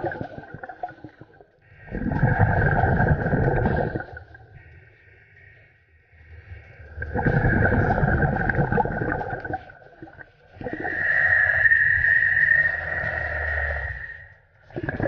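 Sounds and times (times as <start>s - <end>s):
gurgling exhale bubbles: 0.0s - 4.7s, 6.3s - 15.0s
hissing regulator inhale: 10.7s - 14.4s.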